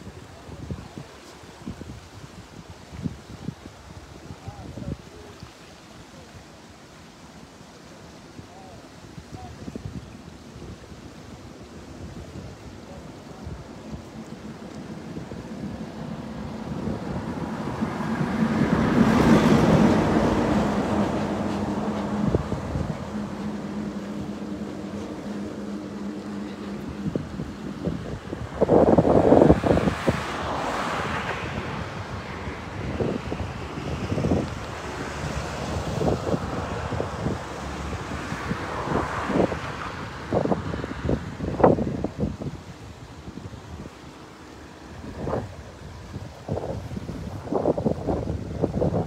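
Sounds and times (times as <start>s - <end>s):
wind buffeting microphone: 0.0s - 5.4s, 8.3s - 49.0s
floodwater rushing: 0.0s - 49.0s
steady low hum: 21.2s - 28.8s.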